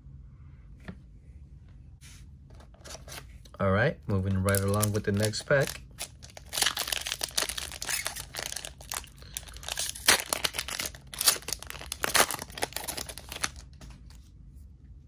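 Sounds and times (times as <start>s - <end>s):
wrapper ripping: 4.2s - 13.9s
foil wrapper crinkling: 4.2s - 14.0s.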